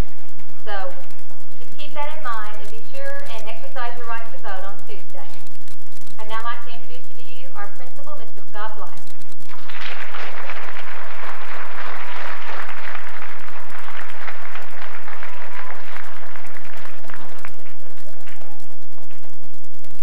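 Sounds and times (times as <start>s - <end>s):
audience applauding: 9.4s - 19.3s.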